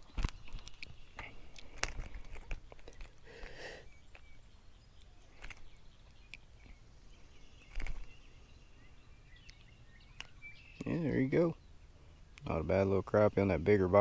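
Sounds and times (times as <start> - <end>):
small clicks and knocks: 0.0 - 3.5
faint bird chirps: 0.0 - 14.0.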